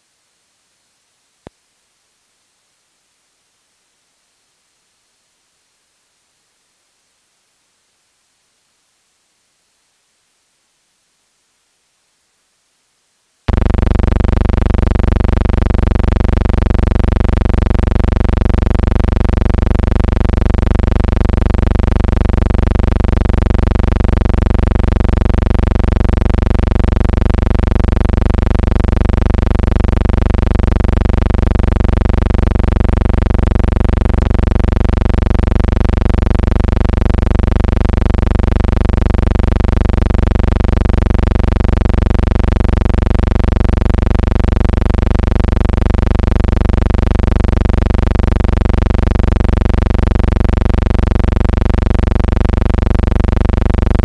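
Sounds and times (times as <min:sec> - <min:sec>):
bassy buzzing hum: 0:13.5 - 0:54.0.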